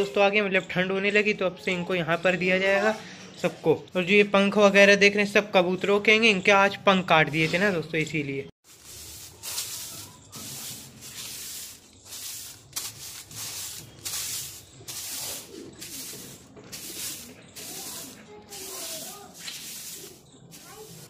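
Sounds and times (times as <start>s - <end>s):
broom sweeping stone floor: 7.3s - 7.8s, 8.6s - 21.0s.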